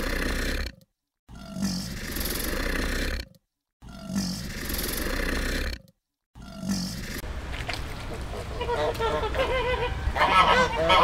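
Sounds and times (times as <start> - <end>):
crocodile growling: 0.0 - 7.3.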